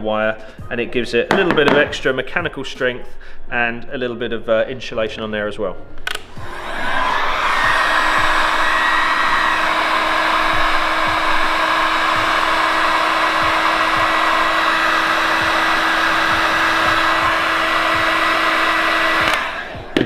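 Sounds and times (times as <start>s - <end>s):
heat gun blowing air: 6.1s - 20.0s.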